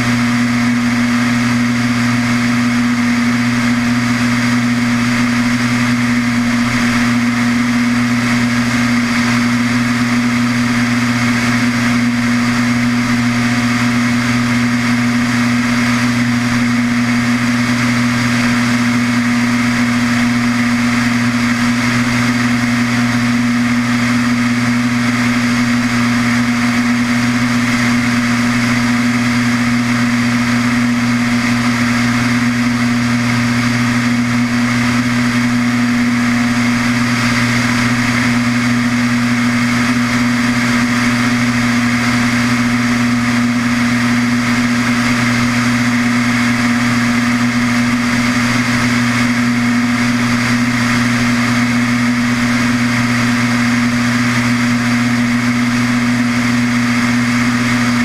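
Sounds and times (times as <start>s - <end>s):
propeller aircraft engine droning: 0.0s - 58.0s.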